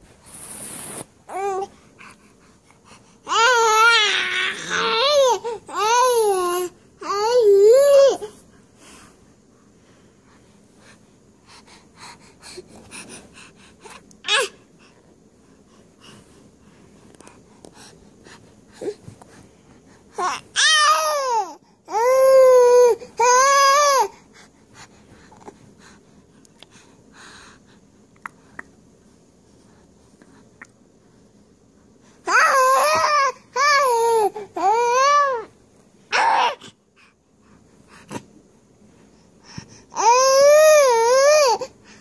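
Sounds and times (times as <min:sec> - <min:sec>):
baby babbling: 0:03.3 - 0:08.3.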